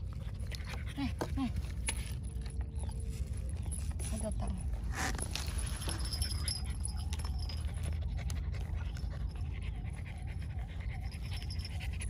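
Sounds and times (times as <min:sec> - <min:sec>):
steady low rumble: 0:00.0 - 0:12.0
dog panting: 0:05.9 - 0:12.0.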